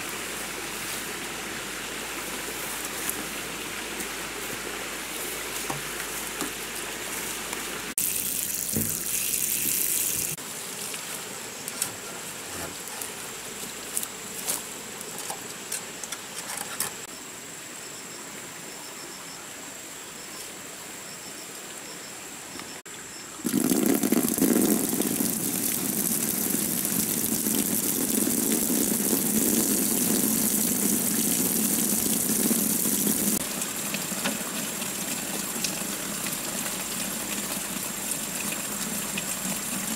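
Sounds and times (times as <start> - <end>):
rustling in vegetation: 0.0 - 17.1
water gushing from pipe: 7.9 - 10.4, 23.4 - 39.9.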